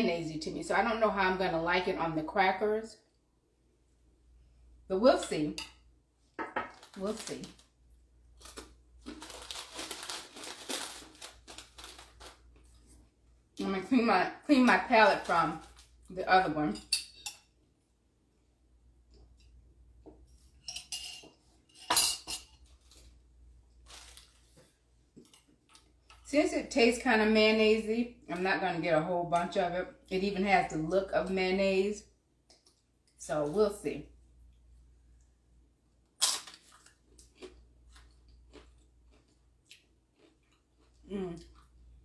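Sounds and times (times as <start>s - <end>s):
chewing crunches: 36.2s - 41.8s.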